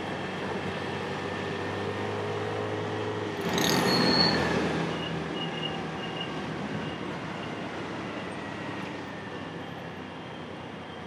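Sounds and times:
road and wind noise: 0.0 - 11.0
rush of traffic: 0.0 - 11.0
brief high squeal: 3.6 - 7.6.

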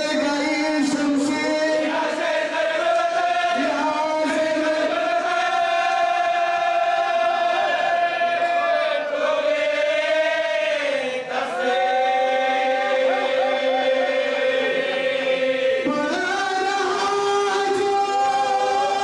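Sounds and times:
men chanting elegy: 10.2 - 19.0.

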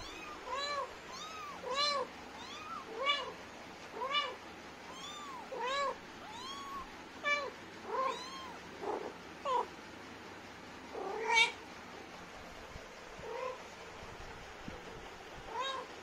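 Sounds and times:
cat and kittens meowing: 0.0 - 9.7, 10.9 - 11.6, 13.2 - 13.7, 15.4 - 16.0.

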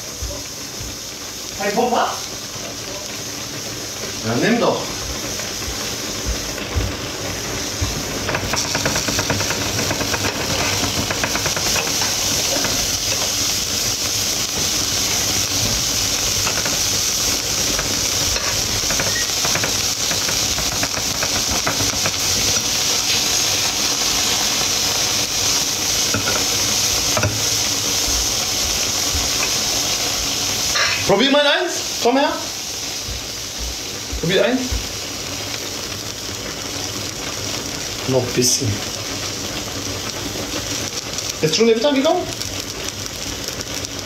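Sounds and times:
cheese sauce simmering in a pan: 31.2 - 44.0.

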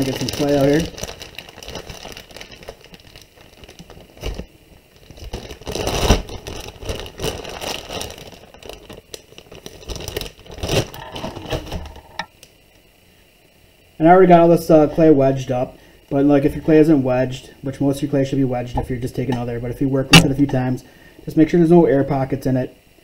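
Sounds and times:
plastic bag crinkling: 0.0 - 12.2.

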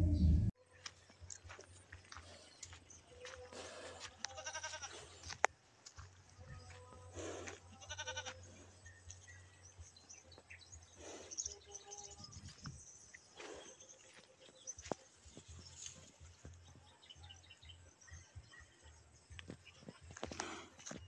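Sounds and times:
goat bleating: 4.2 - 5.1, 7.8 - 8.4.

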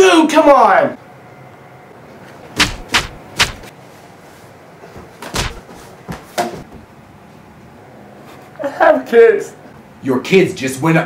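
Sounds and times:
cardboard tube smacking a person: 2.6 - 3.7, 5.2 - 6.6.

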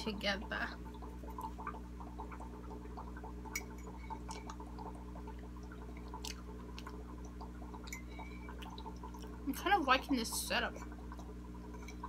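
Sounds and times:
bubbling in fish tank: 0.0 - 12.0.

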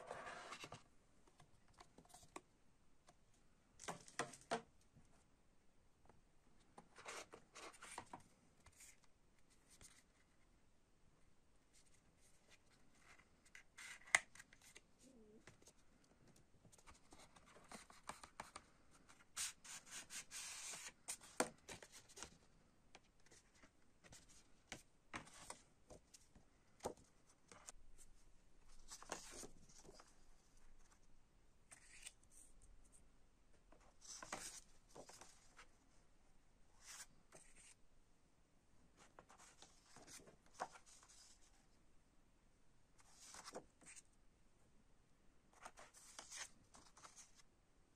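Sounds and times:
paper and cards rustling: 28.7 - 30.2, 31.7 - 32.5, 33.9 - 35.7, 43.0 - 44.1, 45.6 - 47.4.

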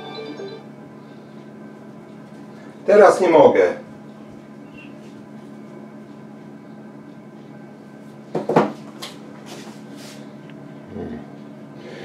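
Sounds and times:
kitchen appliance humming: 0.0 - 1.8.

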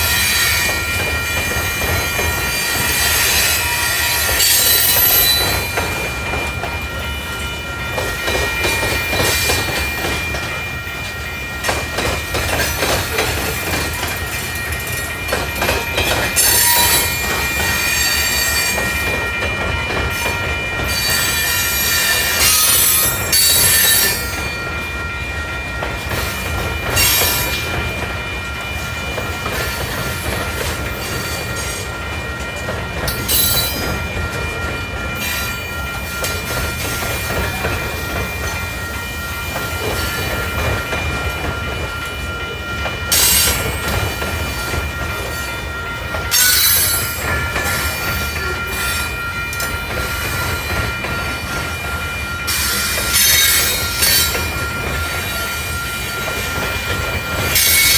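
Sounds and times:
high-pitched wheel squeal: 0.0 - 6.3
train wheels rumbling on rails: 0.0 - 57.9.

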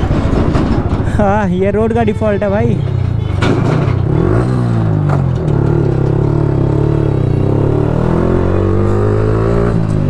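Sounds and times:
motorcycle engine running: 3.0 - 10.0.

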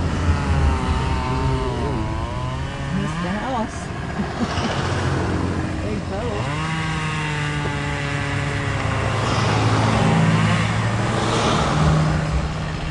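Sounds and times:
engine running: 0.0 - 12.9.

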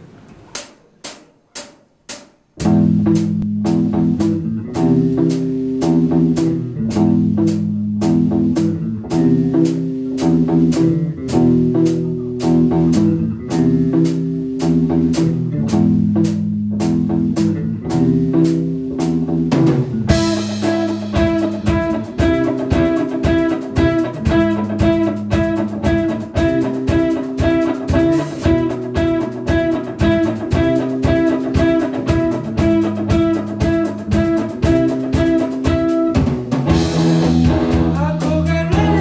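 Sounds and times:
drumstick clicks: 0.3 - 2.4
rock band playing: 2.6 - 39.0.

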